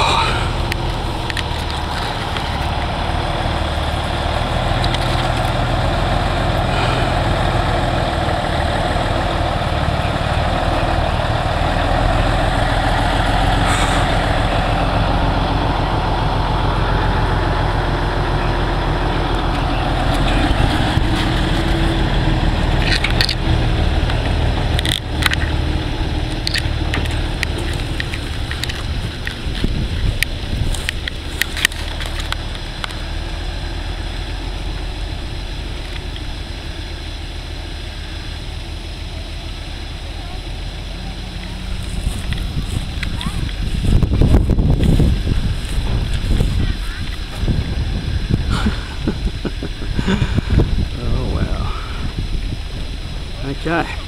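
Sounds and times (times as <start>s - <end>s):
truck engine rumbling: 0.0s - 54.0s
sharp clicks and knocks: 26.2s - 33.0s.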